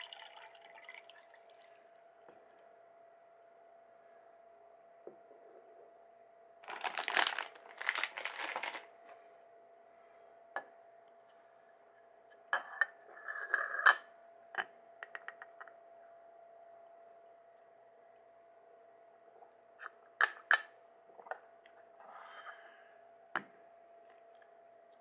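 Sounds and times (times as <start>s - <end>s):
packaging crinkling and tearing: 6.6s - 8.9s.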